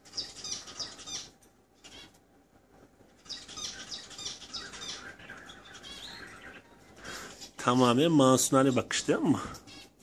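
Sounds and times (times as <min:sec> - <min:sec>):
small birds chirping: 0:00.0 - 0:10.0.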